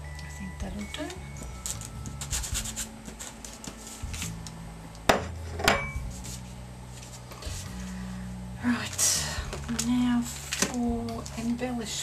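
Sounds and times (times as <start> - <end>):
paper rubbing and scraping: 1.7 - 4.4, 6.0 - 7.9.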